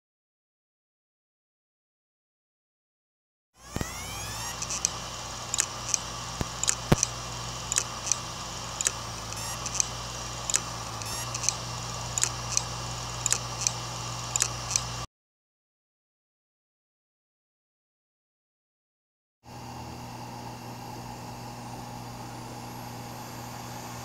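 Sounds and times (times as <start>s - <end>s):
hard drive heads clicking: 3.6s - 15.1s
hard drive spinning hum: 3.6s - 15.1s, 19.5s - 24.0s.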